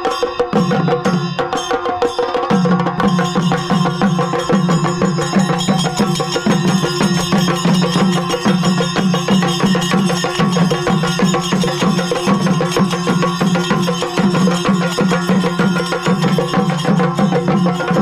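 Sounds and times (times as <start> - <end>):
drums beaten in fast roll: 0.0 - 18.0
hand cymbals ringing: 0.0 - 18.0
deep drum beat: 2.5 - 18.0.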